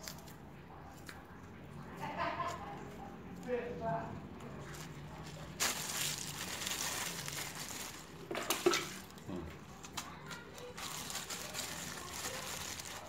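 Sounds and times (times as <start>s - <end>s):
plastic sheet crinkling: 4.6s - 13.0s.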